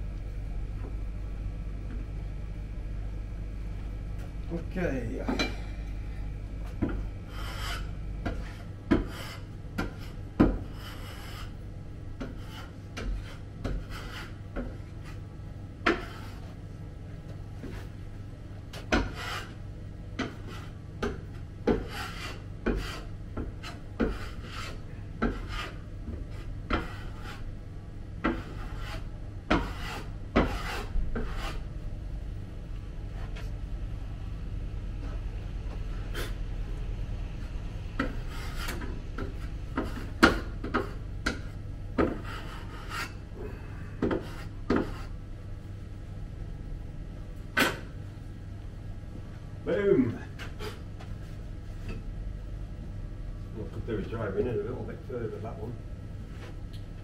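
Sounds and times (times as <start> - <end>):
low hum: 0.0 - 12.2, 30.2 - 53.8
hand tool scraping wood: 7.3 - 11.6, 18.9 - 19.5, 21.7 - 27.4, 28.2 - 31.6.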